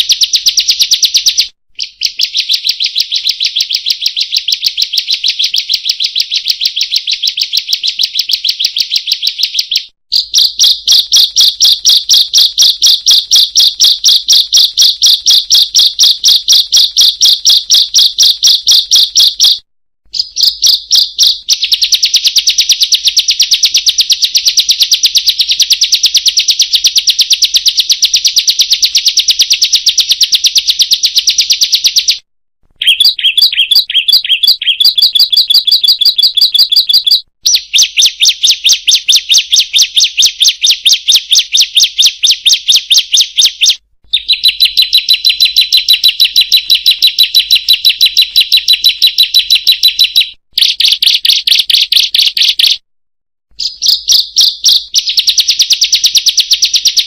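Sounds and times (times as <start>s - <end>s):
songbird high fast calls: 0.0s - 24.0s, 32.8s - 51.0s, 53.6s - 55.2s.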